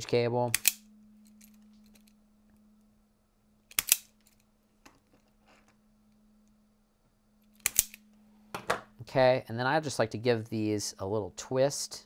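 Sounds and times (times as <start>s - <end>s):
wire stripper snapping: 0.5s - 0.8s, 3.7s - 4.2s, 7.6s - 8.0s.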